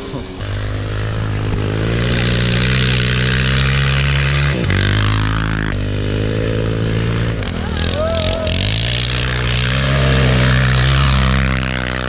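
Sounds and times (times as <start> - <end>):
snowmobile engines at high revs: 0.0 - 12.0
rush of snowmobile tracks: 7.0 - 12.0.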